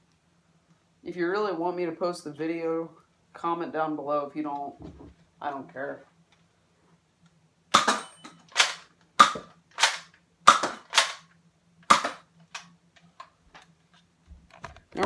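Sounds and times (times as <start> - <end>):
toy dart blaster clacks and pops: 7.8 - 12.7.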